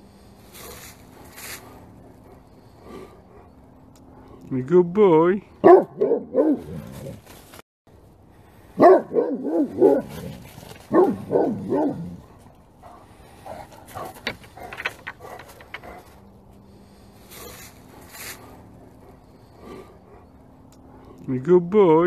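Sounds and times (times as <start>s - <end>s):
dogs barking: 5.5s - 7.2s, 8.7s - 16.2s, 17.3s - 21.3s.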